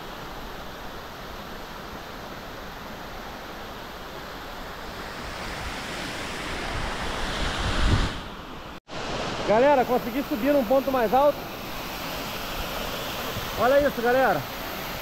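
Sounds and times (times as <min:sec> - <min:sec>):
waterfall and stream rushing: 0:00.0 - 0:15.0
wind rumbling on microphone: 0:04.8 - 0:08.4.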